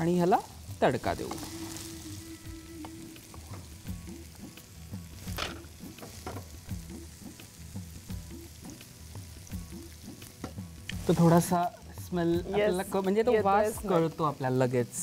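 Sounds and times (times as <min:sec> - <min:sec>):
chillies sizzling in butter: 0:00.0 - 0:15.0.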